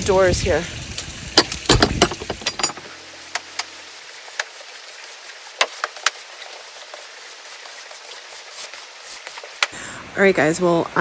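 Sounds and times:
sharp knocks: 1.4 - 3.7
broom sweeping hay on concrete: 3.4 - 9.7.

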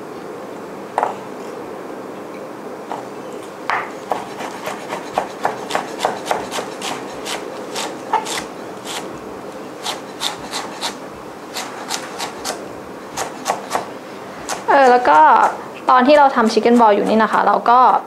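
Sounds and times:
knife chopping on wooden board: 3.7 - 9.0, 9.8 - 11.0, 11.6 - 12.6, 13.2 - 15.6.

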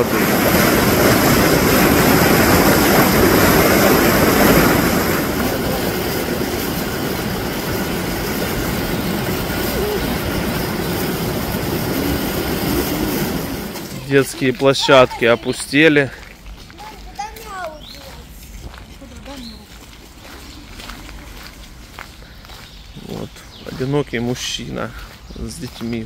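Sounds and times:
rushing water roar: 0.0 - 17.2.

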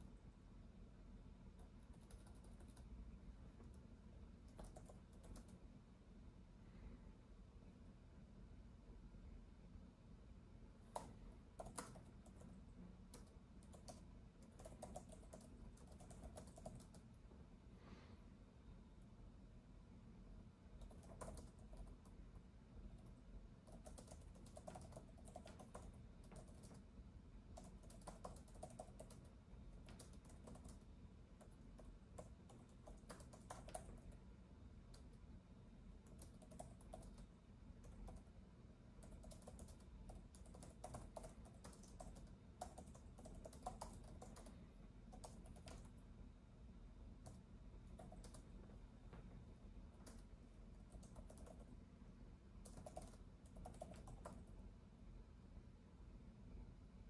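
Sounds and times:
low steady background hum: 0.0 - 57.0
typing on a keyboard: 1.5 - 3.0, 3.6 - 5.6, 10.8 - 17.2, 20.7 - 26.9, 27.5 - 34.3, 36.0 - 38.3, 39.0 - 46.0, 47.2 - 48.7, 50.0 - 51.8, 52.6 - 54.6.

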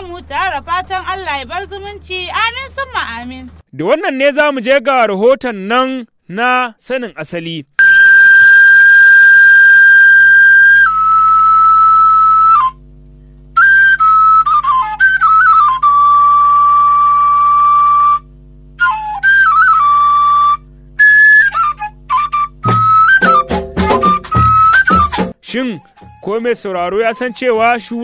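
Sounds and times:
flute-like melody: 7.8 - 12.8, 13.6 - 28.0.

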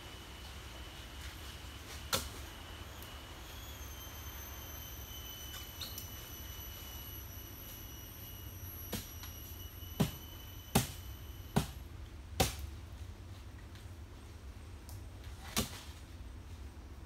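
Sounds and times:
high-pitched insect drone: 0.4 - 11.8.

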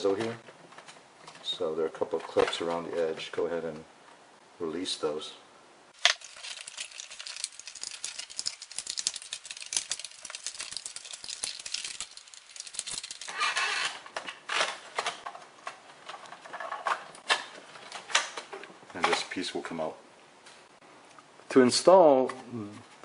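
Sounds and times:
plastic clips clicking and rattling: 6.0 - 19.2.

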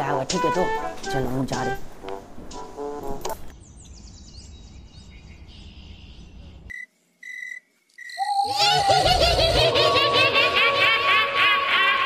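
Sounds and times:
birds twittering: 3.5 - 6.7
cricket chirps: 4.5 - 8.7.

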